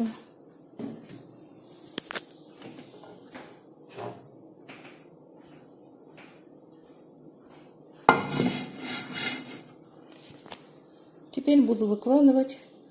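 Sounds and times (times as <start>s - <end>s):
frying pan scraping on hob: 8.1s - 9.7s.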